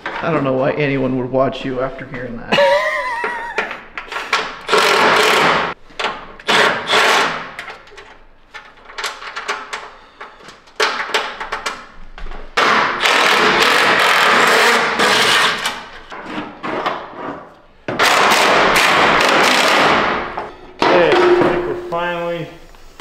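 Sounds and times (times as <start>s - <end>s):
impact wrench hammering: 4.3s - 5.8s, 12.6s - 15.6s, 17.9s - 22.0s.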